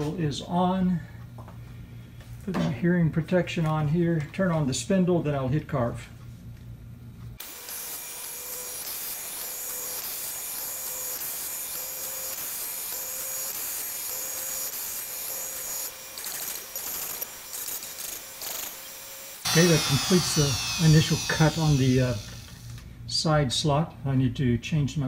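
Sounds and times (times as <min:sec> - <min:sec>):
bit cutting wood hiss: 0:07.4 - 0:22.8
router spindle whining: 0:07.4 - 0:22.8.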